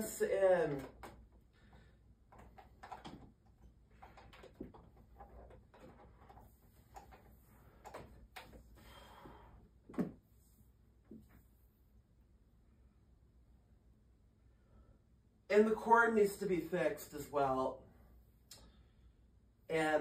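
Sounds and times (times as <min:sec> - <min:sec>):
power cord rustling and clicking: 0:02.3 - 0:08.7.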